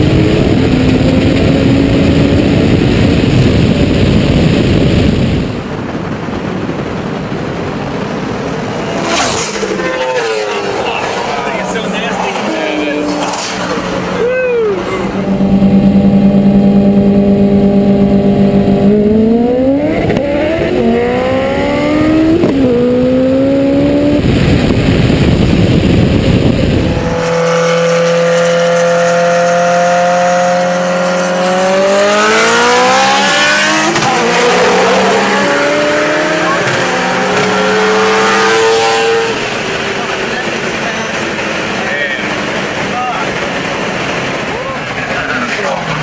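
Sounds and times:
car engine accelerating through gears: 0.0s - 5.5s, 8.2s - 44.6s.

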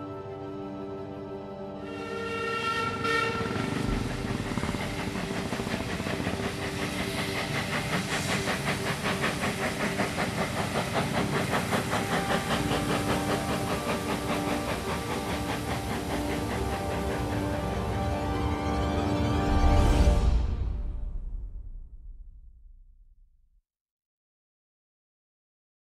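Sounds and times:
steam hissing: 1.9s - 18.5s
steam locomotive chuffing: 1.9s - 20.9s
steady tone: 2.0s - 10.3s.

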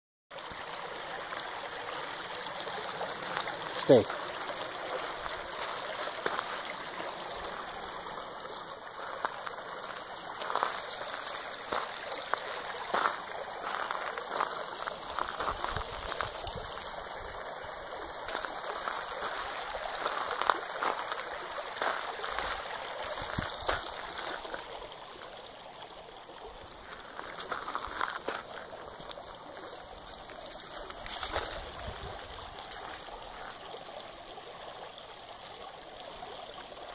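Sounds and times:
creek flowing over stones: 0.3s - 36.9s.

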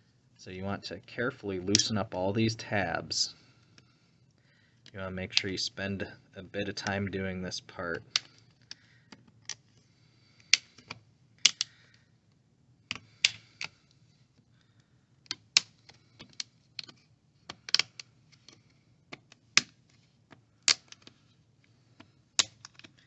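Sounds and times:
plastic clips snapping loose: 10.4s - 11.8s, 15.3s - 19.8s, 20.6s - 21.2s, 22.4s - 23.0s.

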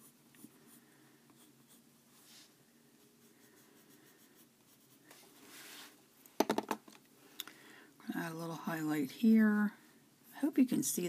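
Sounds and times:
colored pencil scratching on paper: 0.0s - 5.8s.

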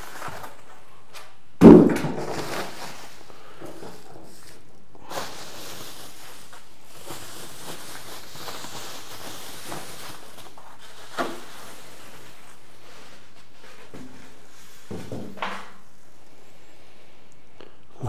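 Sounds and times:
packaging rustling: 2.1s - 14.6s.

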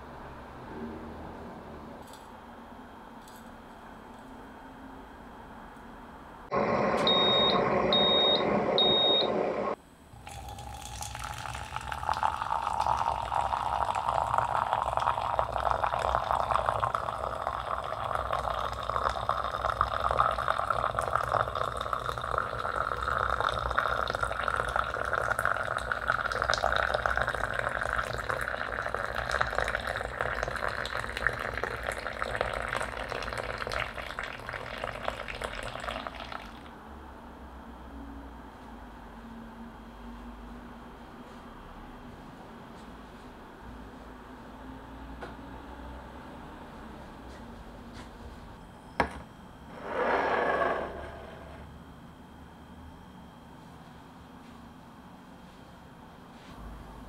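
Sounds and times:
kettle high beeps: 6.5s - 9.8s
loud steady noise: 6.5s - 9.8s
water pouring into glass: 10.2s - 36.7s.

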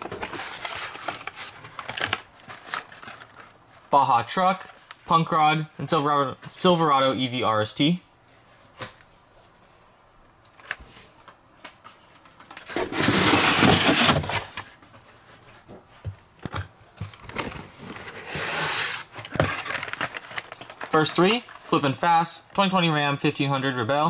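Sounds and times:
cardboard scraping rustle: 0.0s - 3.5s, 12.6s - 15.5s, 17.2s - 22.0s
clicks and rustling of packaging: 0.0s - 5.0s, 10.3s - 22.0s.

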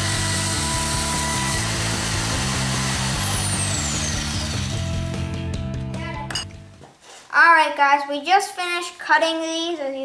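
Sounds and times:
band saw whine winding down: 0.0s - 5.2s
rock music with steady beat: 4.5s - 6.8s.

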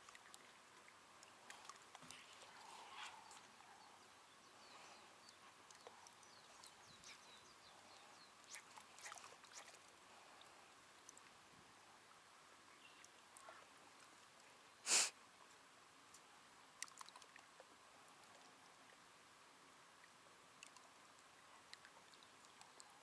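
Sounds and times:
faint clicks: 5.2s - 6.8s, 20.0s - 22.9s
sharp sniff: 14.8s - 15.2s.

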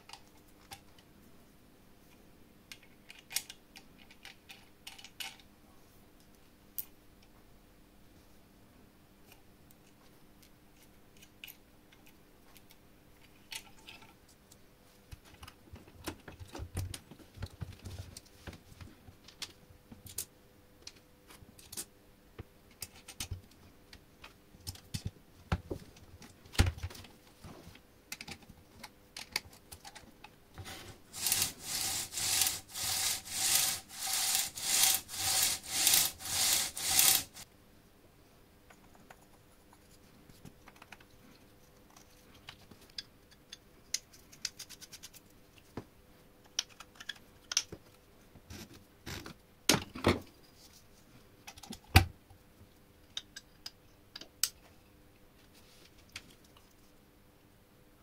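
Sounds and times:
saw chain rasping: 31.1s - 37.4s.

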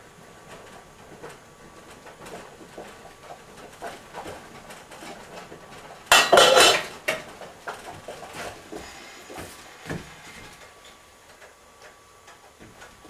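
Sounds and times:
pot lid clattering: 6.1s - 6.9s.

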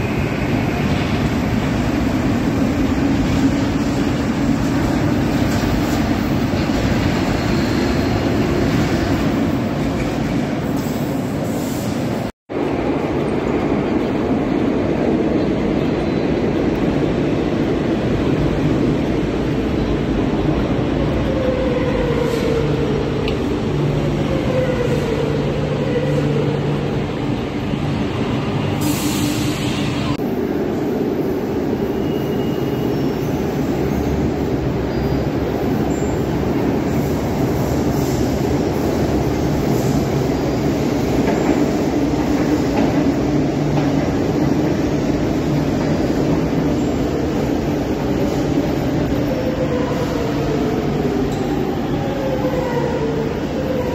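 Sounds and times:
metro train wheels rumbling on rail: 0.0s - 53.9s
train wheels squealing: 7.0s - 8.6s, 31.9s - 34.3s, 34.9s - 36.5s.

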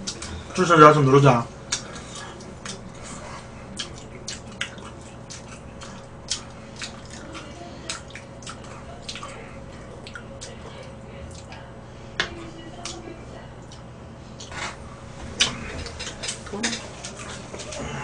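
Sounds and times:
steady low hum: 0.0s - 18.0s
wet chewing clicks and smacks: 1.7s - 3.0s, 3.7s - 11.6s, 12.8s - 13.0s, 13.6s - 14.6s.

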